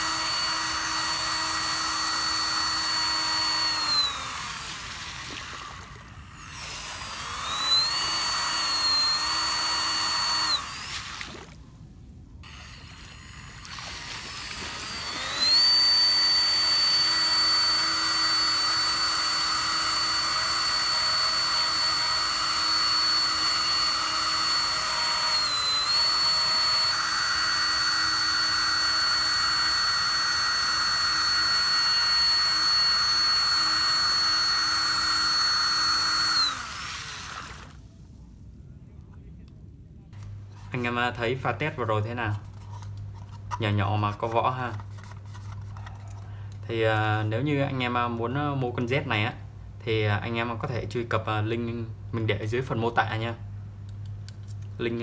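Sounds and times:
electric motor whining: 0.0 - 11.6, 12.4 - 37.8.

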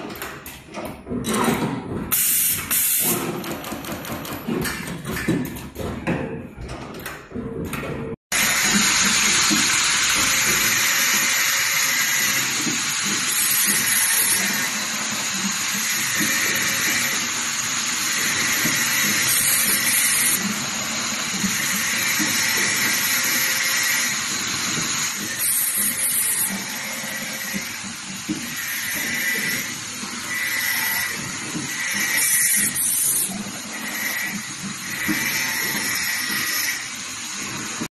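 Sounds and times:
machine clicks and knocks: 0.0 - 9.6.

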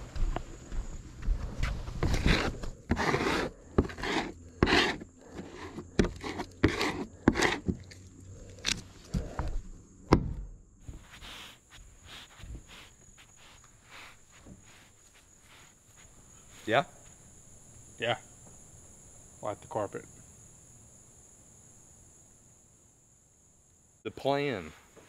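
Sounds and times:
footsteps on wooden boards: 0.0 - 7.9, 9.1 - 17.2
hand spreader scraping adhesive: 2.0 - 8.1, 10.9 - 16.1.

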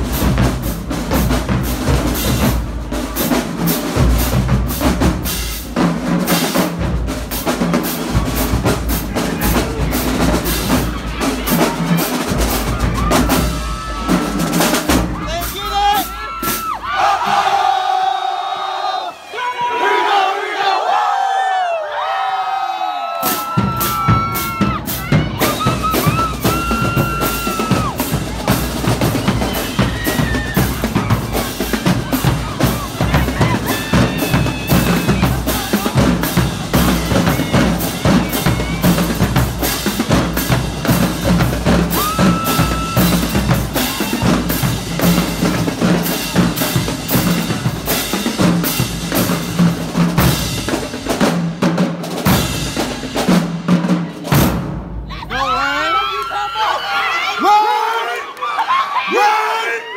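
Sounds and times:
bass drums: 0.0 - 17.6, 23.3 - 55.3
snare drums: 0.0 - 18.2, 23.1 - 55.6
cymbals: 23.2 - 55.3.

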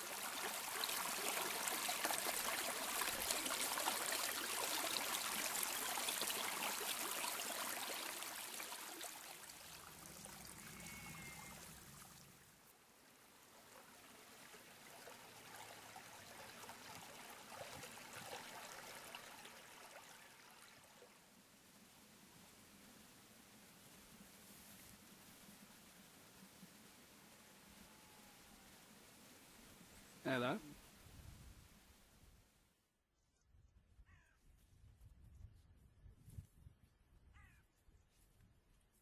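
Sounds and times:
stream splashing over stones: 0.0 - 21.1
faint steady hiss: 0.0 - 32.8.

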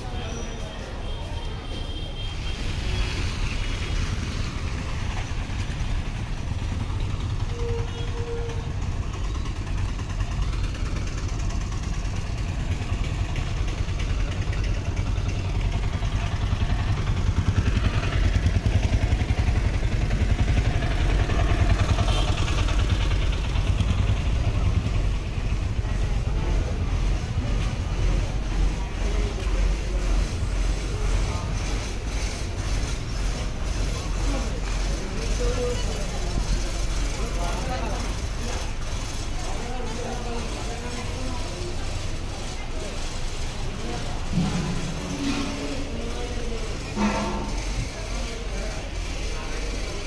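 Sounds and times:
vehicle engines passing: 0.0 - 50.0.

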